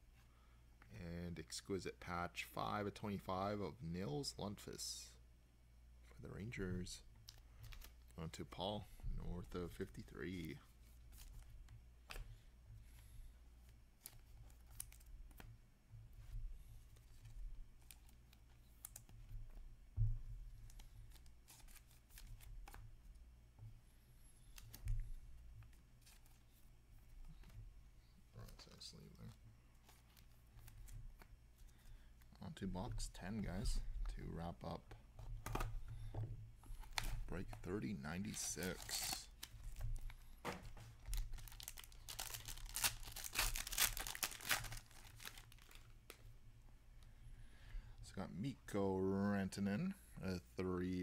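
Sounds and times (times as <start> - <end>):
plastic wrapper crinkling: 36.8 - 46.2.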